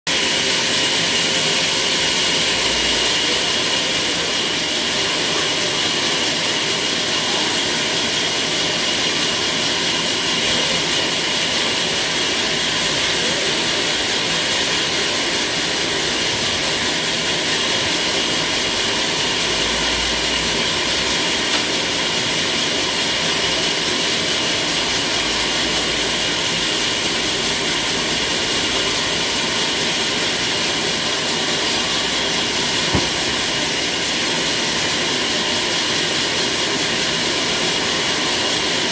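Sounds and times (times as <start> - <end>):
band saw cutting log: 0.1 - 38.9.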